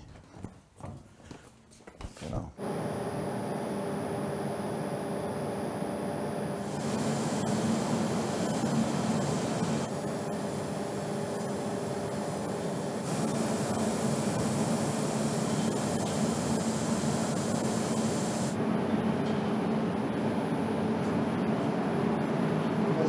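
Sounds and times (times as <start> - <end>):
paint spray gun hissing: 6.6 - 18.6.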